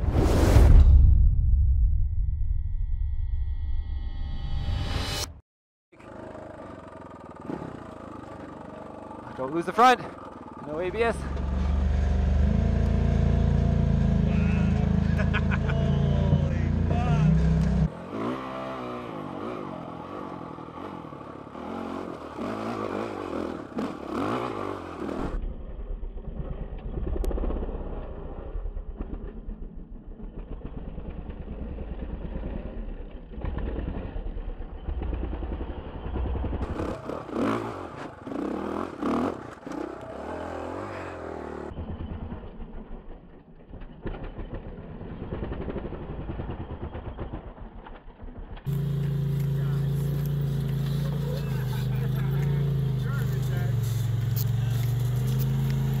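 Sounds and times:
dirt bike engine revving: 6.1 - 25.4, 34.8 - 41.8, 48.7 - 56.0.

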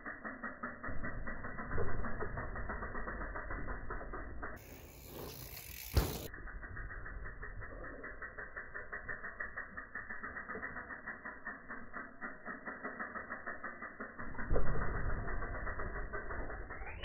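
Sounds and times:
bike freewheel hub ticking: 0.0 - 17.0
tyres rolling on dirt: 4.6 - 6.3.

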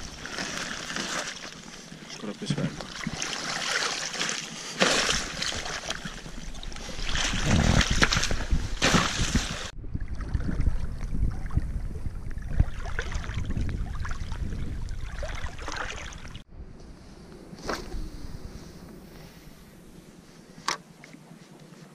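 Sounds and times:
ice crunching and cracking underfoot: 0.0 - 1.8, 3.2 - 9.7
water sloshing and lapping: 0.0 - 16.5.

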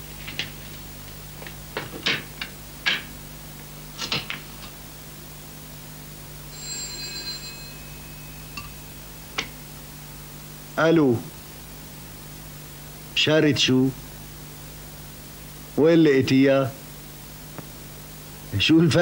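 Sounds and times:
steady low hum: 0.0 - 19.0
high ringing tone: 6.3 - 10.5.

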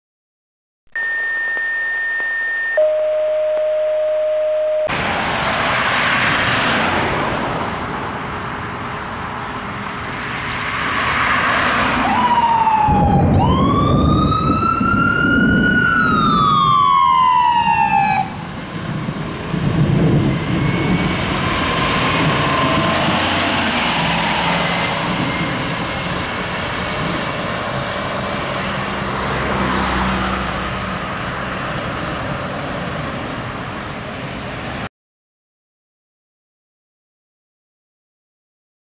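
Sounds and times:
electronic tones: 0.9 - 4.9
road traffic noise: 1.0 - 34.9
ambulance siren wailing: 1.6 - 5.0, 11.8 - 30.6
vehicle engine: 4.9 - 34.8.

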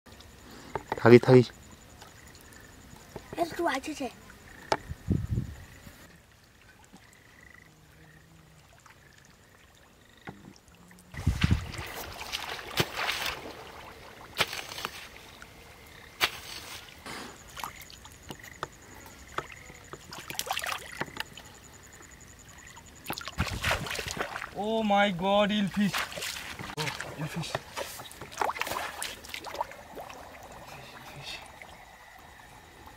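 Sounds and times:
wading through mud and water: 10.6 - 32.9
heavy splash into muddy water: 11.2 - 14.9, 23.3 - 24.6.

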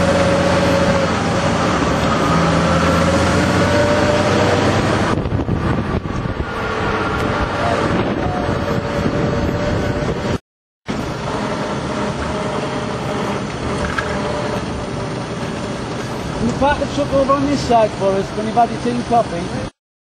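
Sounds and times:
truck engine running: 0.0 - 19.6
wind noise: 1.0 - 10.4.

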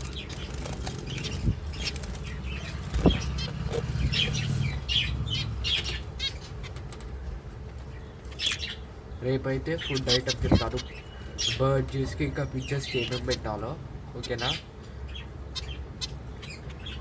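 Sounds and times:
wings fluttering: 0.0 - 8.7
finches chirping: 0.0 - 17.0.

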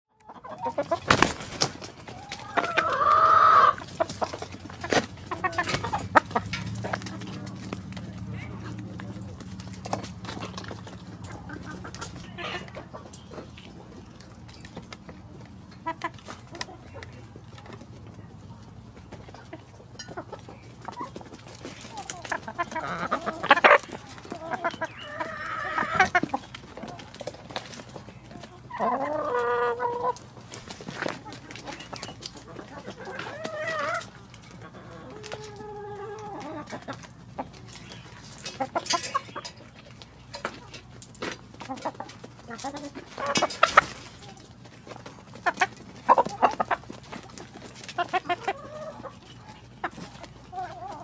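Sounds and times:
chickens clucking: 0.1 - 51.0
chicken squawk: 2.1 - 3.9, 22.3 - 26.4, 48.0 - 51.0.

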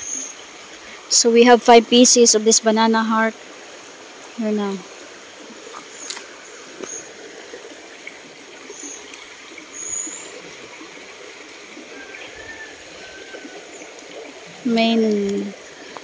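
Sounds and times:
stream running water: 0.0 - 16.0.

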